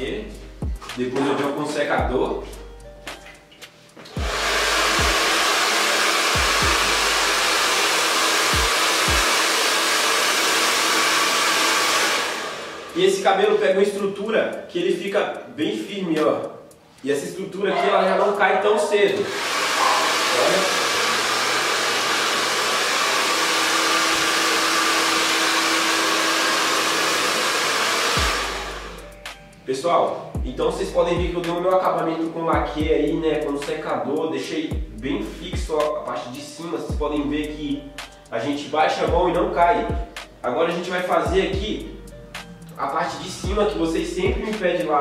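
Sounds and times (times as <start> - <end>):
hair dryer blowing: 4.1 - 13.1, 19.1 - 29.1.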